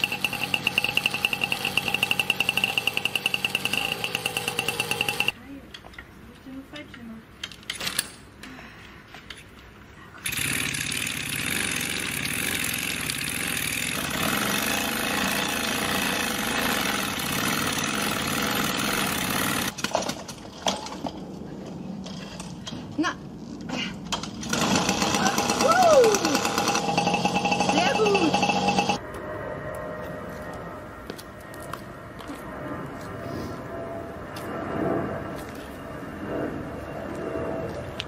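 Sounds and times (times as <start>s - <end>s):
moped engine running: 24.5s - 29.0s.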